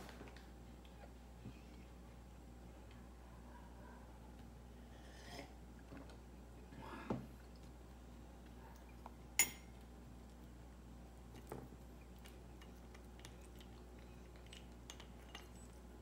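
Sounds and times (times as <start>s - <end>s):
cat eating from a dish: 7.3s - 16.0s.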